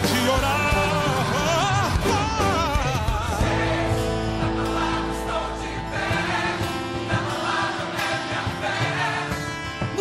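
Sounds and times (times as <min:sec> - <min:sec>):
person singing: 0:00.0 - 0:03.7
gospel band held chords: 0:00.0 - 0:10.0.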